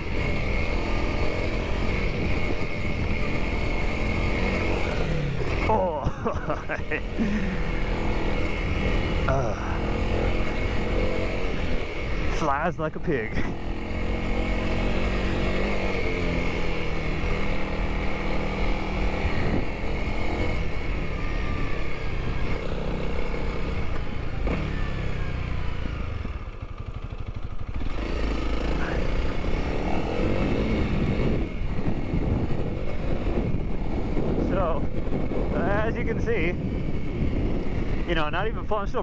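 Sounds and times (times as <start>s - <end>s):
motorcycle engine on dirt trail: 0.0s - 39.0s.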